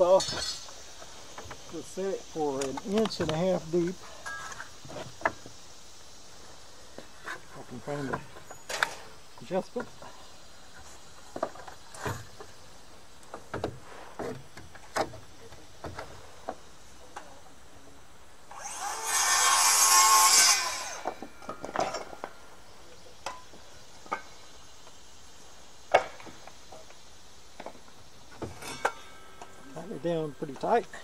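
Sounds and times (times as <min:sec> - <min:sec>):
circular saw cutting wood: 0:18.5 - 0:21.2.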